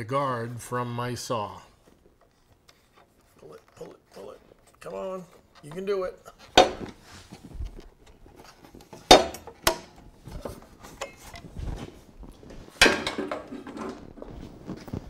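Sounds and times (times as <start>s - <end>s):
plastic guard clanks and clicks: 8.8s - 10.0s.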